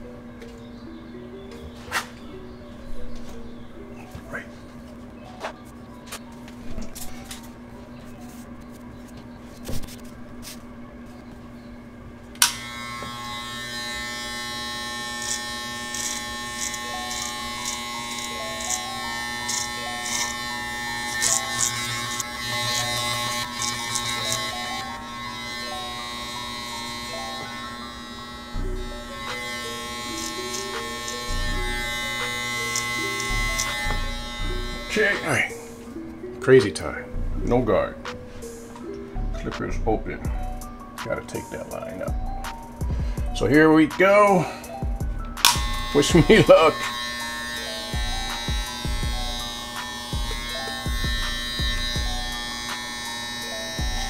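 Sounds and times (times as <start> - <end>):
background music: 0.0 - 8.8, 11.1 - 54.0
electric hair clippers buzzing: 12.4 - 36.1, 44.8 - 54.0.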